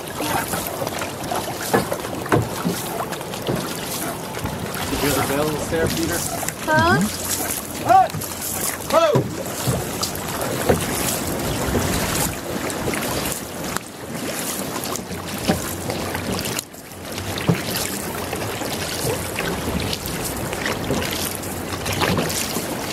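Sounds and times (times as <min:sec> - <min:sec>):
paddles splashing in water: 0:00.0 - 0:22.9
water rushing along hull: 0:00.0 - 0:22.9
wind buffeting microphone: 0:02.4 - 0:13.3.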